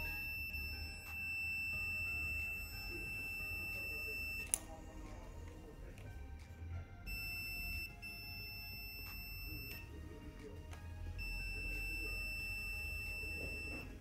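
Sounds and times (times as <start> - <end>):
high-pitched electronic beep: 0.0 - 4.6, 7.1 - 9.9, 11.2 - 14.0.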